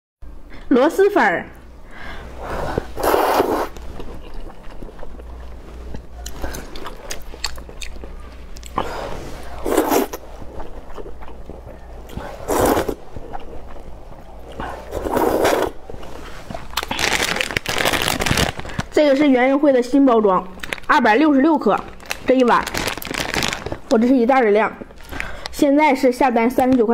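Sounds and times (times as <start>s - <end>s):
noodles slurped: 2.5s - 15.8s
chewing: 3.0s - 17.4s.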